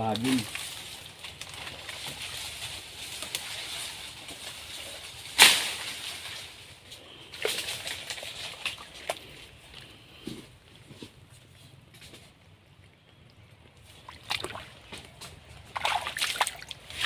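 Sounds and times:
sharp crack of stalks: 0.0s - 9.3s
rustling of dry palm fronds: 0.0s - 17.0s.

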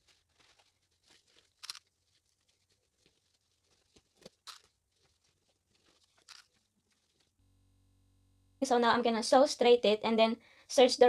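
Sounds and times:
satin fabric rustling: 0.0s - 7.4s.

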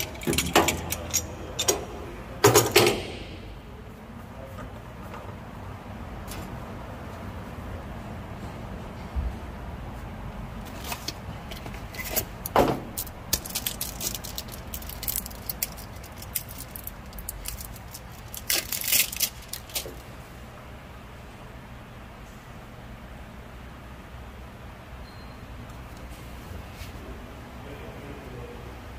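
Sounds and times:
metal tools clinking and scraping: 0.0s - 2.9s
low background hum: 0.0s - 28.9s.

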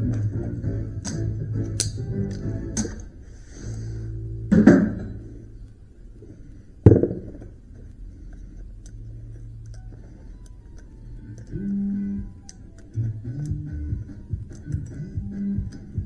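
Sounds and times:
sharp knocks: 6.9s - 7.5s.

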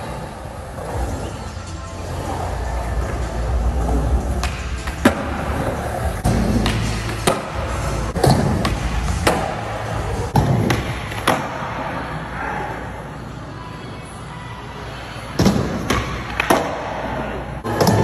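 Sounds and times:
background music: 0.0s - 11.9s
skateboard wheels rolling on concrete: 0.0s - 11.9s.

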